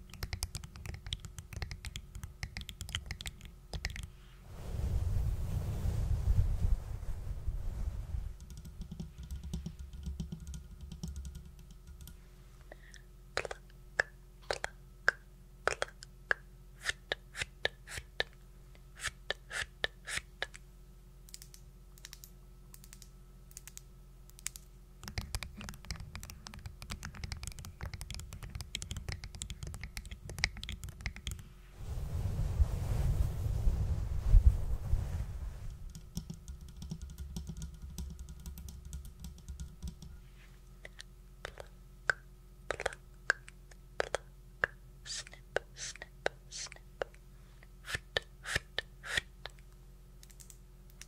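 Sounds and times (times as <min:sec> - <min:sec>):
sharp clicks and taps: 0:00.0 - 0:04.1, 0:08.4 - 0:12.2, 0:21.3 - 0:31.4, 0:35.9 - 0:40.2
soft low rustling: 0:04.1 - 0:08.4, 0:31.5 - 0:36.0.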